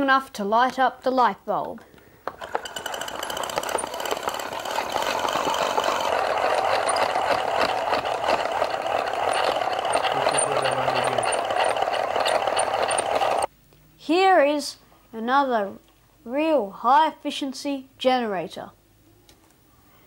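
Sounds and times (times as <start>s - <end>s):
hand-cranked generator whirring: 2.2s - 13.5s.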